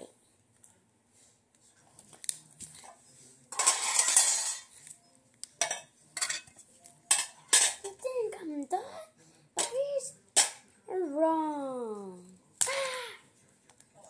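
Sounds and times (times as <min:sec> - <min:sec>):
objects rattling and rustling: 0:02.6 - 0:04.8.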